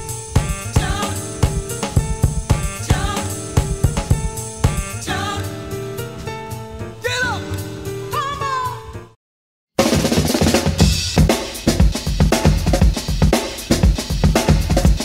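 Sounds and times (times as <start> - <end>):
dance music with drum beat: 0.0 - 5.6, 9.8 - 15.0
person singing: 0.6 - 2.0, 2.6 - 4.2, 4.9 - 6.2, 7.0 - 9.1.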